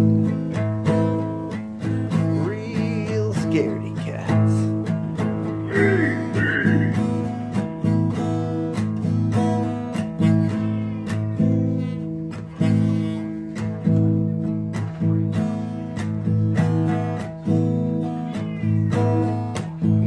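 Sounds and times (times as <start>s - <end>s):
acoustic guitar strumming: 0.0s - 20.0s
cat meowing: 5.6s - 7.0s, 10.4s - 11.5s, 18.2s - 19.3s.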